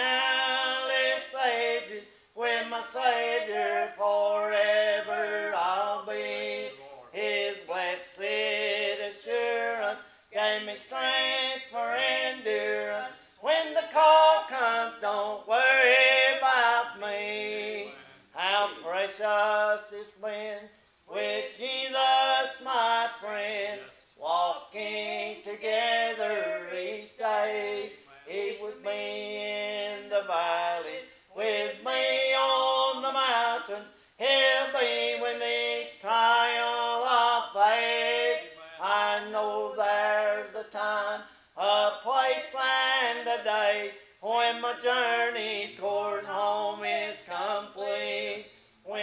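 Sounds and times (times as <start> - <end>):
person singing gospel song: 0.0 - 49.0.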